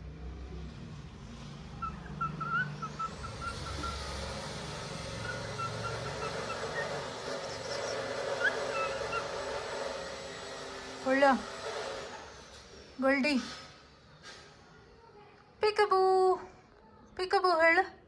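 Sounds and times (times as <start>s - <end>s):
cockatiel chirping: 1.8s - 4.3s, 5.1s - 9.8s.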